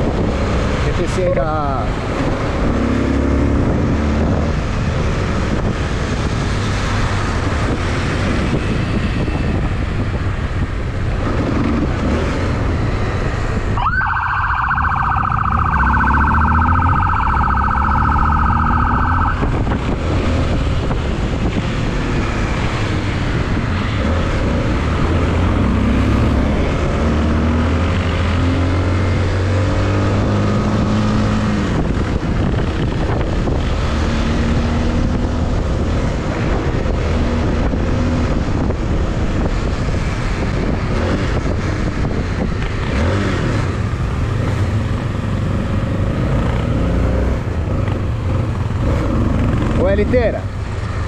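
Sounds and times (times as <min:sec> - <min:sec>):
wind noise on microphone: 0:00.0 - 0:51.0
motorcycle engine: 0:11.0 - 0:33.0
police siren: 0:13.8 - 0:19.6.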